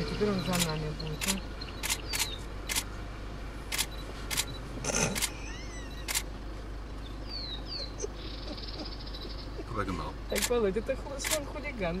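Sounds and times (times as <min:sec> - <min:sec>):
camera shutter clicks: 0:00.6 - 0:02.9, 0:03.7 - 0:04.5, 0:06.0 - 0:06.3, 0:10.4 - 0:10.6.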